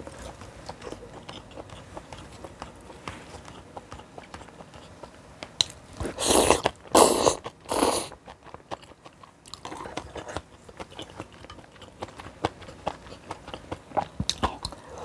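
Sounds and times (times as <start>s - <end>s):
chewing with wet mouth clicks: 0.1s - 14.8s.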